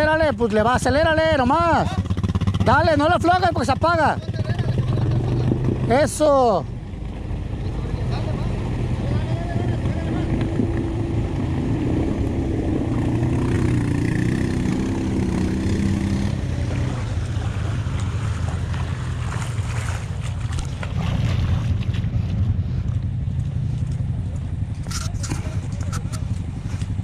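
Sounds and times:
off-road vehicle engine running: 0:00.0 - 0:27.0
water sloshing: 0:16.4 - 0:27.0.

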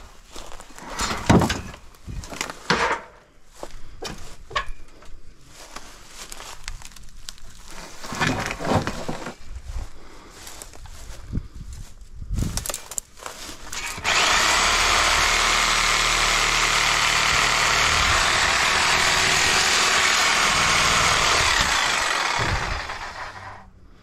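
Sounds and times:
power tool running: 0:13.7 - 0:23.7.

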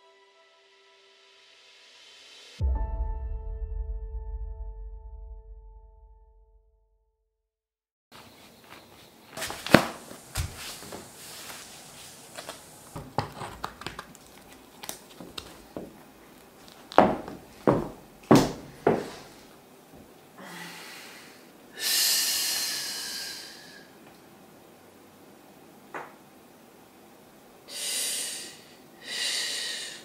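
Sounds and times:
high heels on hard floor: 0:12.3 - 0:19.5
long hissing breath out: 0:20.4 - 0:24.0, 0:27.7 - 0:30.0.

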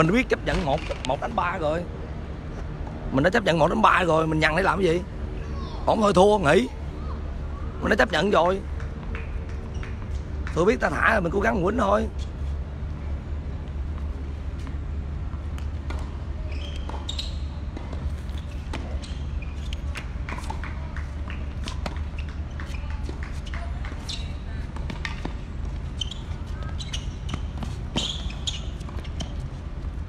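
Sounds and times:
tennis ball bouncing: 0:13.6 - 0:30.0
rackets striking tennis ball: 0:14.6 - 0:25.5.

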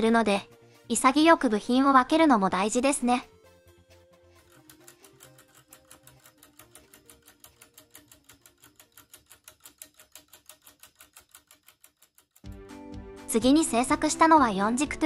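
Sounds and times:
faint background music: 0:00.0 - 0:09.1, 0:12.4 - 0:15.0
clockwork escapement ticking quickly: 0:04.4 - 0:12.6.

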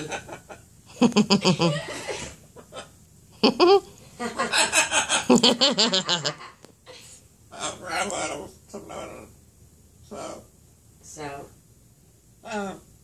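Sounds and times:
parrot imitating laughter: 0:03.4 - 0:03.9, 0:04.5 - 0:06.6.

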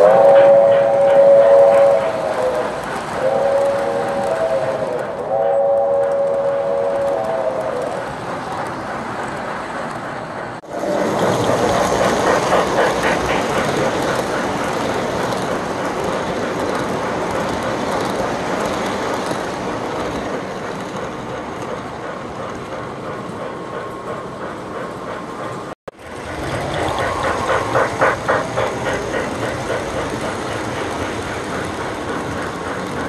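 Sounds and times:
model train wheels clattering: 0:00.0 - 0:33.0.

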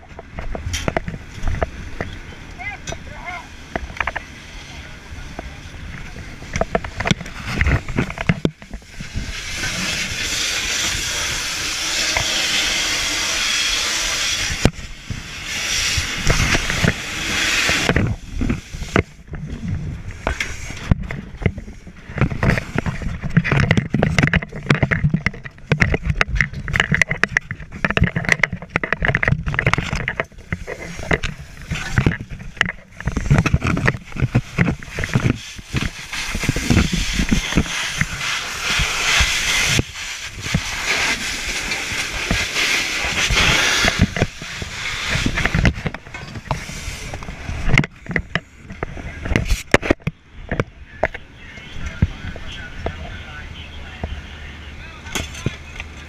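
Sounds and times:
fire hose water hissing: 0:02.5 - 0:19.3, 0:30.3 - 0:47.8.

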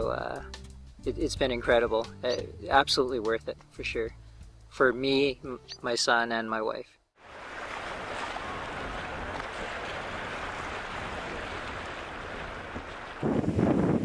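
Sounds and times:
river water rushing and splashing: 0:07.2 - 0:14.0
wind buffeting microphone: 0:07.4 - 0:14.0.

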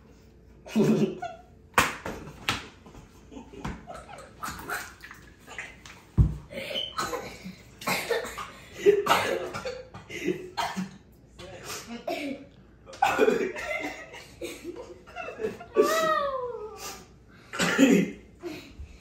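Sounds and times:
person laughing and spluttering: 0:00.7 - 0:01.5, 0:03.2 - 0:08.2.

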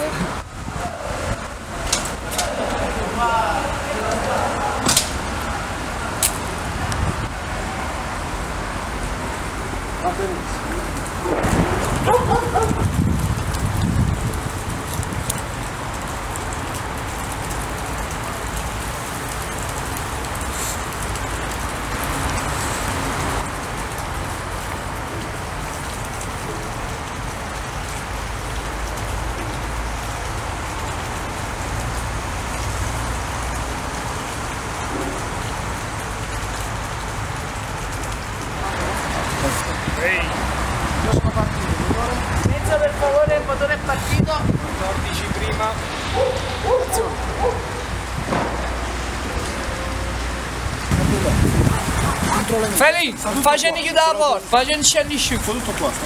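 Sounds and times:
outdoor background rumble: 0:44.4 - 0:52.7.

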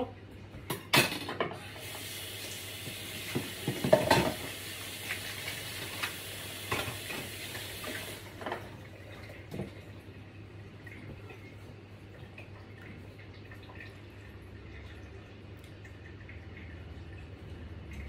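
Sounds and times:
water running: 0:00.0 - 0:18.0
dishes clattering: 0:00.6 - 0:01.7, 0:03.3 - 0:04.5, 0:08.4 - 0:08.8.

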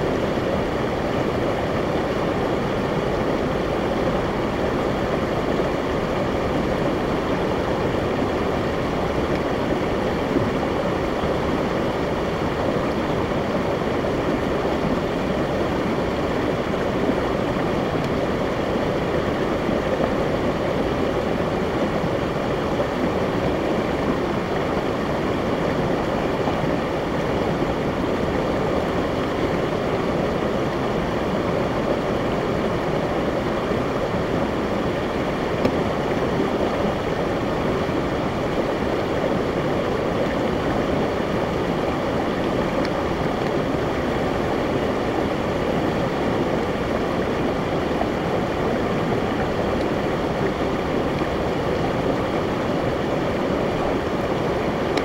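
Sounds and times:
stream rushing over rocks: 0:00.0 - 0:55.0.

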